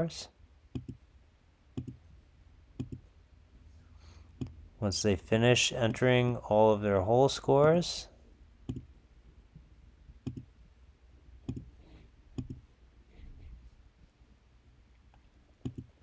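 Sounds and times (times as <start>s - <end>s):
faint room noise: 0.0s - 16.0s
computer mouse clicks: 0.7s - 1.0s, 1.8s - 2.0s, 2.8s - 3.1s, 8.7s - 8.9s, 10.2s - 10.5s, 11.4s - 11.7s, 12.4s - 12.6s, 15.6s - 15.9s.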